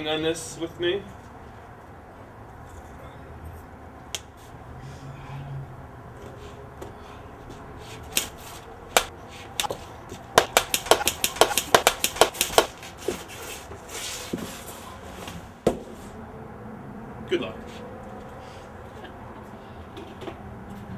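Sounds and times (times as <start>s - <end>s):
punch impacts: 10.4s - 12.8s.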